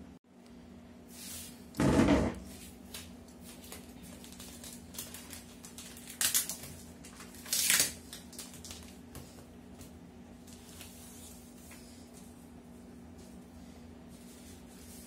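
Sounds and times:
plastic rustling: 2.4 - 12.0
plastic envelope tearing: 3.7 - 9.0.

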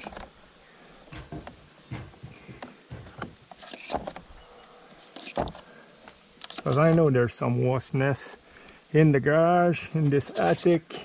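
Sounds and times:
cable rustling and scraping: 2.6 - 4.3, 6.4 - 7.1, 10.0 - 10.8.

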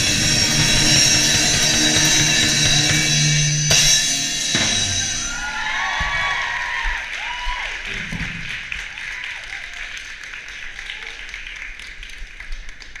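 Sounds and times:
cheering and shouts: 4.8 - 10.0
audience applause: 5.4 - 13.0.

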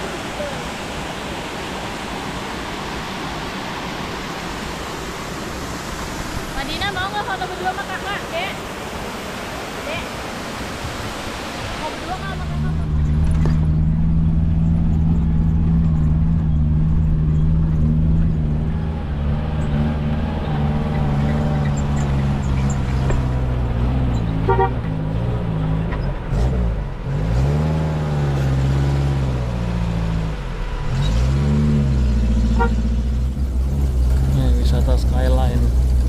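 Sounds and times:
vehicle engine running: 12.1 - 36.0.

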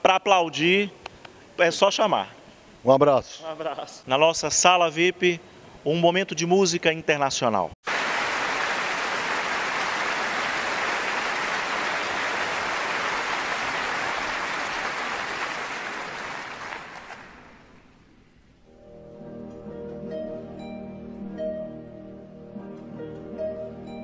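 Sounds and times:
audience applauding: 7.8 - 17.8.

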